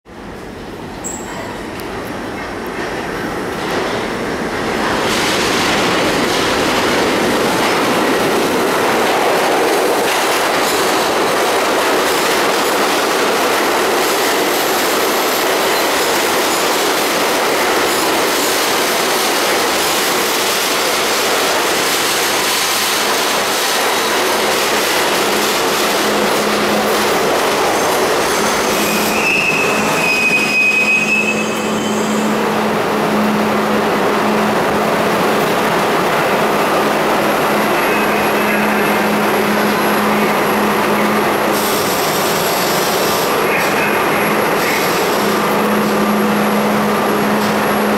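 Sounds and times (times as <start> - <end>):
subway train wheels on rails: 0.1 - 47.9
high brake squeal: 27.7 - 32.4.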